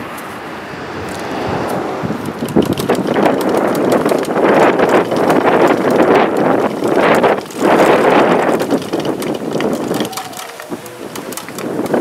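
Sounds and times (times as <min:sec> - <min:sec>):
gusty wind buffeting microphone: 0:00.0 - 0:12.0
faint clicks: 0:02.2 - 0:12.0.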